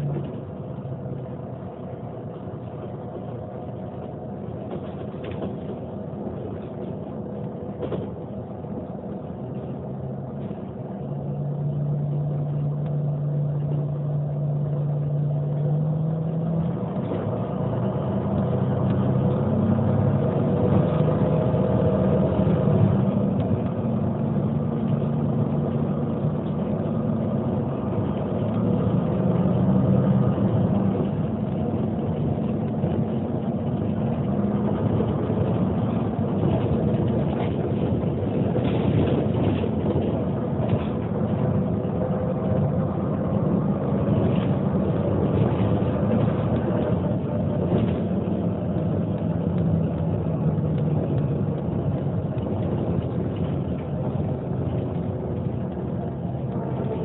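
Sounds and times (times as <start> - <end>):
bus diesel engine running: 0.0 - 57.0.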